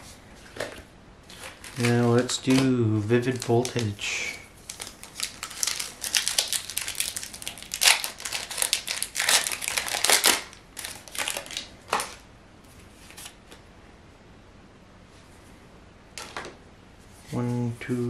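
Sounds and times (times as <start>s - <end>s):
foil wrapper crinkling: 1.3s - 12.2s.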